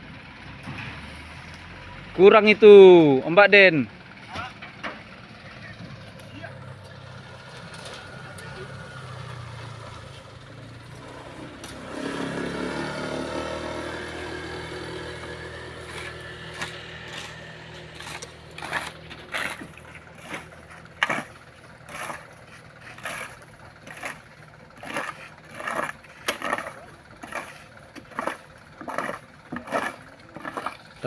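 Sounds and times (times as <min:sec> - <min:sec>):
truck engine running: 0:00.0 - 0:31.0
scraping on gravel: 0:15.0 - 0:31.0.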